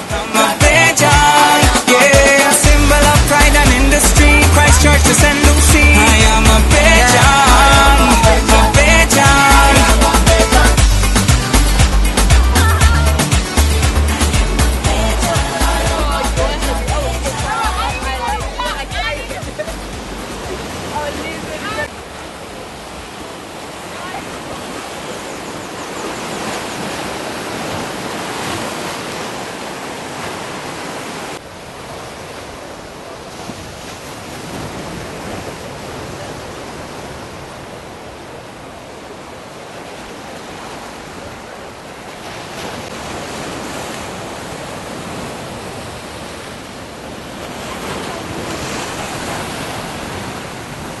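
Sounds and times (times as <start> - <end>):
ocean surf breaking on beach: 0.0 - 51.0.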